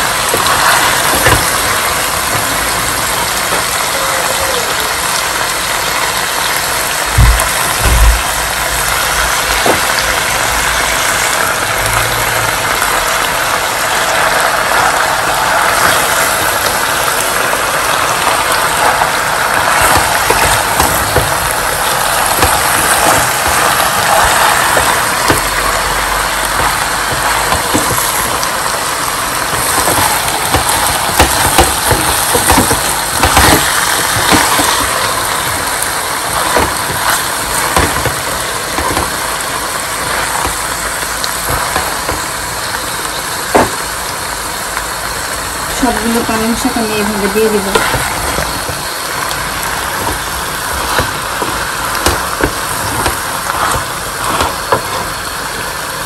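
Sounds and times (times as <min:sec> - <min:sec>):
food sizzling in a frying pan: 0:00.0 - 0:56.0
wooden spatula knocking on pan: 0:00.3 - 0:02.6, 0:18.8 - 0:28.8, 0:29.4 - 0:39.3, 0:41.4 - 0:43.8, 0:46.0 - 0:55.1.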